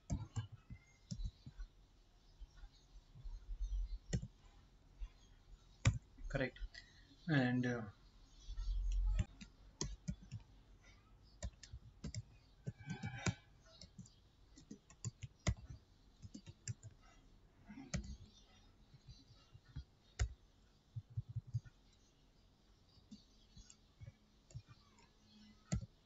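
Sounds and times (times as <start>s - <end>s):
typing on computer keyboard: 0.0s - 1.6s, 8.9s - 10.5s, 11.4s - 17.0s, 17.9s - 18.4s, 25.7s - 26.0s.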